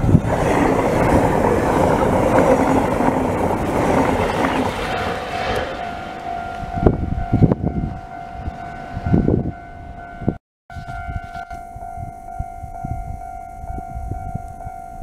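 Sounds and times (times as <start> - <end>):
train passing at speed: 0.0 - 10.4
level crossing warning alarm: 1.0 - 15.0.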